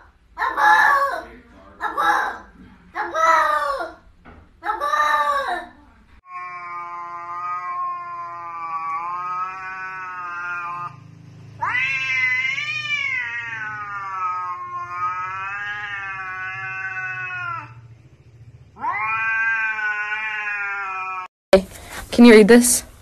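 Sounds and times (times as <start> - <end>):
cat yowling: 6.2 - 17.9, 18.7 - 21.3.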